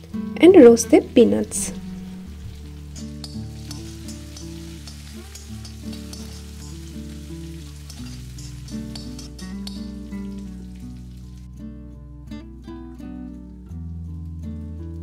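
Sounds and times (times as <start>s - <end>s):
spices sizzling in hot oil: 0.0s - 11.6s
soft background music: 0.0s - 15.0s
spatula scraping pan: 2.9s - 9.9s.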